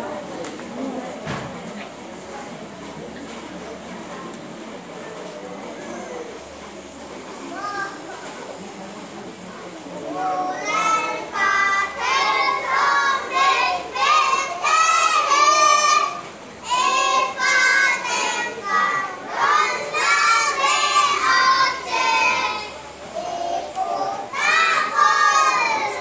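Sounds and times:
girls singing together: 10.5s - 26.0s.

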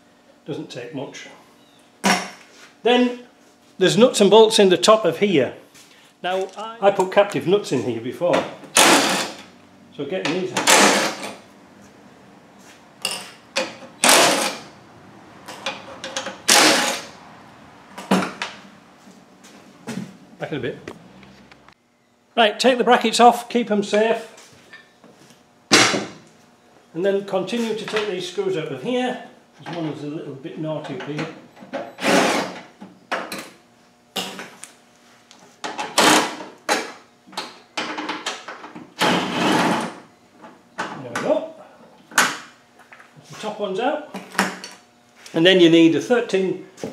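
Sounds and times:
cordless drill running: 8.8s - 9.4s, 14.0s - 14.6s
drill-driver bursts: 8.8s - 9.4s, 10.6s - 11.3s, 14.0s - 14.6s, 16.5s - 17.1s, 32.0s - 32.6s.

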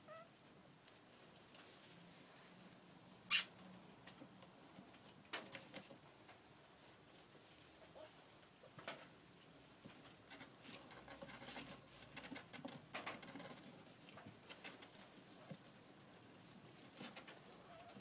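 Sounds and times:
animals scrabbling in wood shavings: 9.8s - 18.0s.

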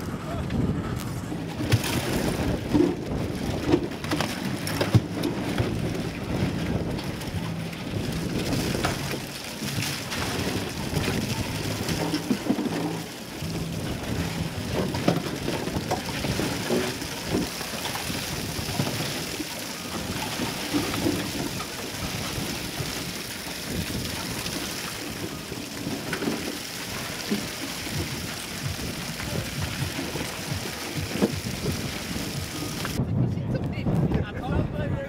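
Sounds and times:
steady low rumble: 0.0s - 4.0s, 10.0s - 17.5s, 26.9s - 35.0s
ice and cans clattering into metal: 1.6s - 33.0s.

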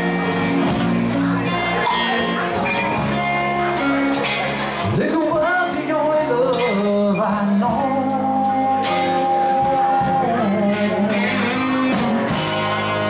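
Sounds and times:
acoustic guitar: 0.0s - 13.0s
electric bass: 0.0s - 13.0s
steady drum beat: 0.0s - 13.0s
man singing: 4.8s - 12.4s.

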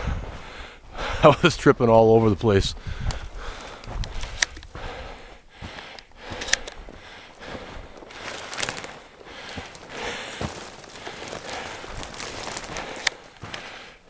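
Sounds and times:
person breathing: 0.0s - 1.3s, 2.8s - 14.0s
footsteps crunching through snow: 0.2s - 14.0s
twigs snapping: 3.0s - 4.8s, 8.0s - 13.8s
branches scraping: 7.5s - 13.9s.

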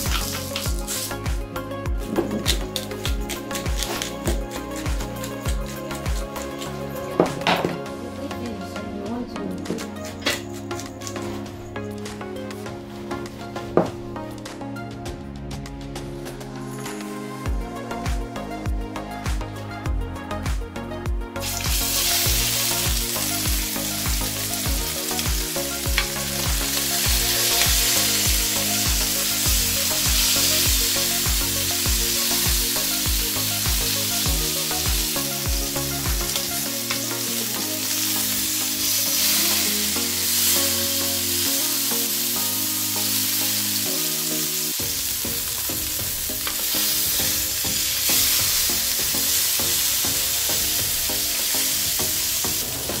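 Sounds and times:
meat sizzling in oil: 0.0s - 1.4s, 21.4s - 53.0s
background music with beat: 0.0s - 53.0s.

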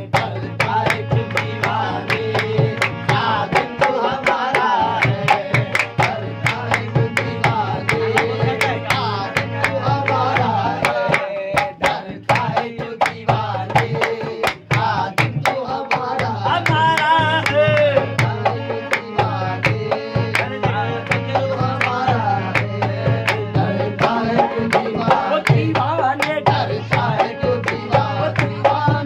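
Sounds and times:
dholak drum beat: 0.0s - 29.0s
hand claps: 0.0s - 29.0s
harmonium melody: 0.0s - 29.0s.

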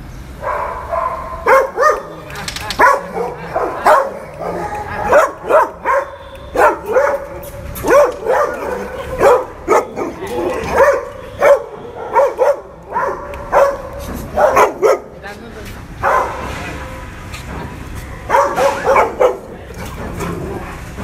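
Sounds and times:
dog barking: 0.4s - 2.2s, 2.8s - 15.2s, 16.0s - 16.5s, 18.3s - 19.6s.

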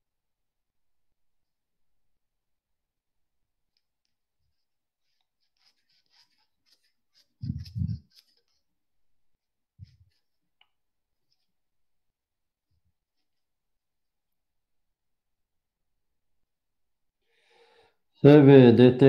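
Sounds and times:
earphone microphone clicks and rubs: 5.1s - 8.6s, 9.8s - 10.4s.

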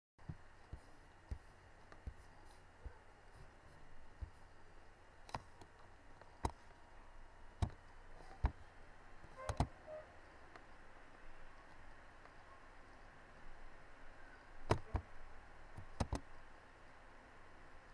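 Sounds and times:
faint steady hiss: 0.2s - 17.9s
computer mouse clicking: 5.3s - 6.7s, 9.4s - 9.8s, 14.6s - 15.0s, 15.8s - 16.3s.

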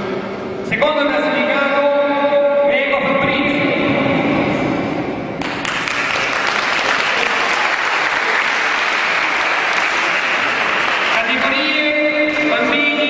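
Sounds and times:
audience clapping: 5.4s - 12.9s.

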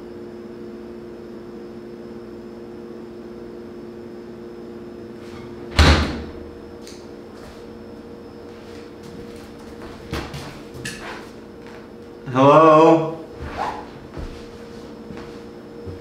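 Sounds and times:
steady hum: 0.0s - 16.0s
refrigerator door slamming: 5.4s - 6.5s.

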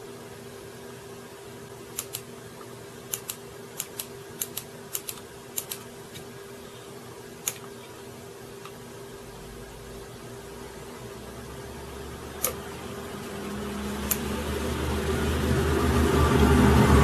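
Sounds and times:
low electrical hum: 0.0s - 17.0s
sharp computer clicks: 1.9s - 2.3s, 3.1s - 5.9s, 7.4s - 7.7s, 12.4s - 12.6s, 14.0s - 14.3s.

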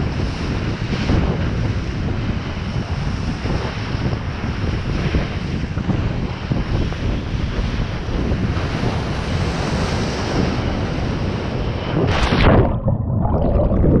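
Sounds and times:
wind buffeting microphone: 0.0s - 14.0s
surf water sloshing: 11.9s - 13.9s
muffled bubbly underwater sound: 11.9s - 14.0s
loud splash: 12.0s - 14.0s.

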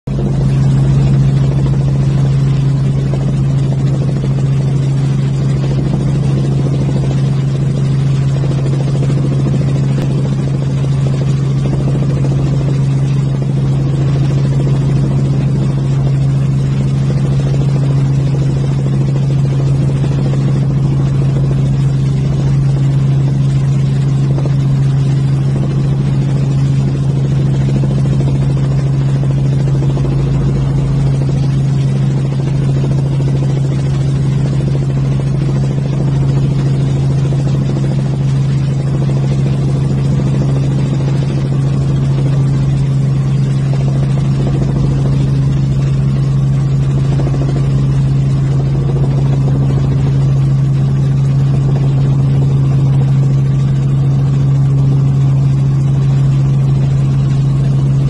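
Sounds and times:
helicopter engine and rotors droning: 0.1s - 58.0s.

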